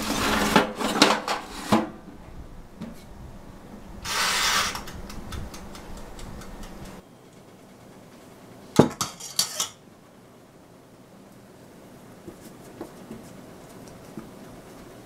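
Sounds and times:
metal utensil clinking on surface: 9.0 - 9.8.

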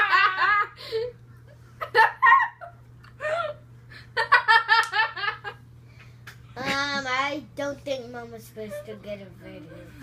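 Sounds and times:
girls giggling: 1.8 - 5.6.

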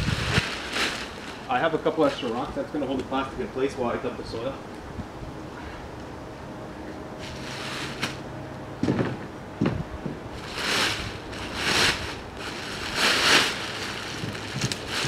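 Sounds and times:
plastic sheeting rustling: 0.0 - 2.6, 7.2 - 8.2, 10.3 - 15.0.

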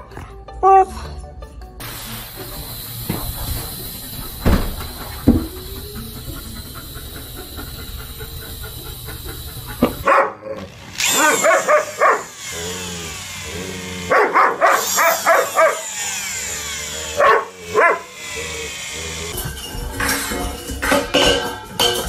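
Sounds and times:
low hum: 1.8 - 10.0
husky yowling barks: 9.8 - 12.7, 14.1 - 16.0, 17.1 - 18.2.

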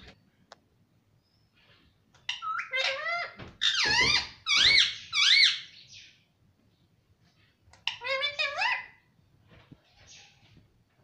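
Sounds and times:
parakeet squeaky calls: 2.2 - 6.1, 7.8 - 9.0.

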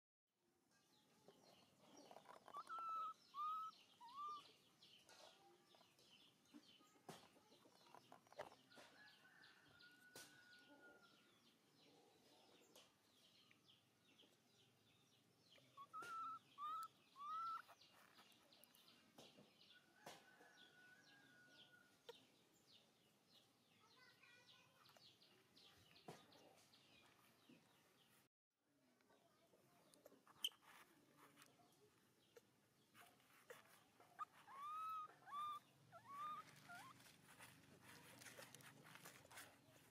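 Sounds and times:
light high-pitched chirping: 1.0 - 11.2, 15.4 - 22.3, 29.2 - 39.9
long held bird call: 15.8 - 17.7.

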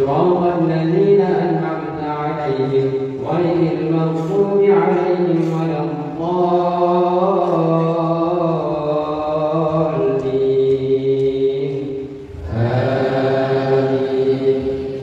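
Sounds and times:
man chanting through a microphone: 0.0 - 15.0.

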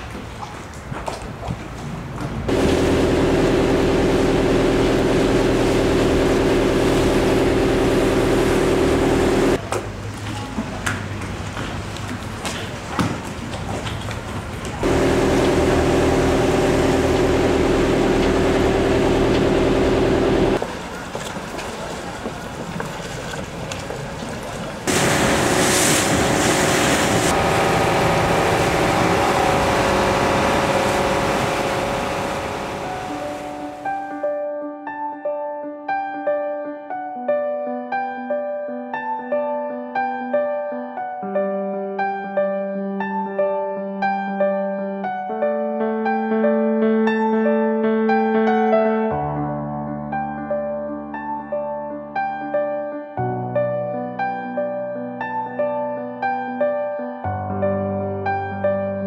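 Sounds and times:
wind: 0.0 - 2.5, 9.6 - 14.8, 20.6 - 29.4
boat engine throbbing: 2.5 - 9.6, 14.8 - 20.6, 24.9 - 33.8
water rushing: 24.9 - 33.9.

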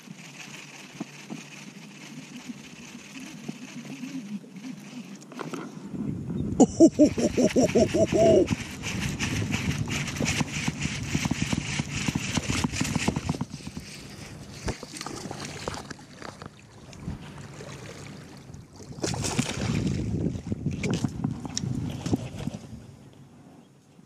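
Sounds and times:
fish splashing: 6.8 - 21.0.

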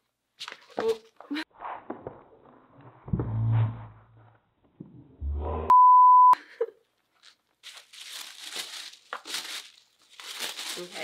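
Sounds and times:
censor bleep tone: 5.7 - 6.4
tissue paper rustling: 7.1 - 11.0.

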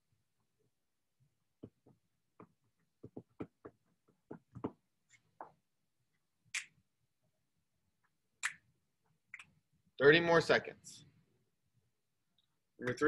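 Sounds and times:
faint irregular clicks and taps: 1.6 - 5.6.

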